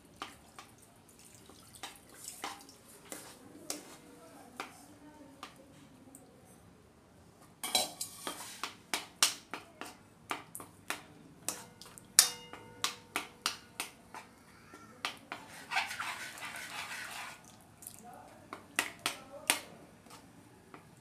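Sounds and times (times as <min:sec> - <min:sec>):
steel spoon clinking in a pan: 0:07.6 - 0:08.4, 0:11.5 - 0:13.0.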